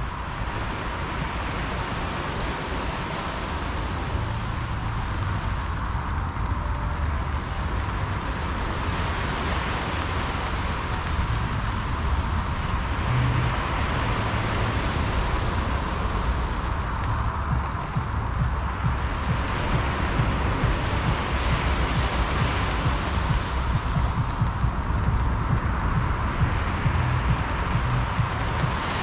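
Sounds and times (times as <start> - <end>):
low rumble: 0.0 - 29.0
rain: 0.0 - 29.0
wind: 0.0 - 29.0.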